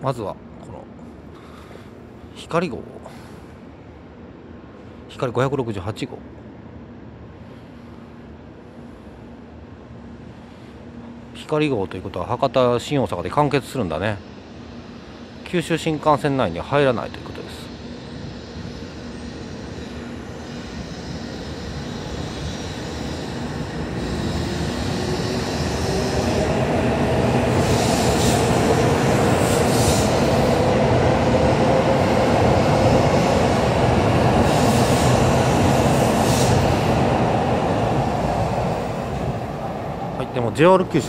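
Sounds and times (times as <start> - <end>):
train running noise: 12.8 - 41.0.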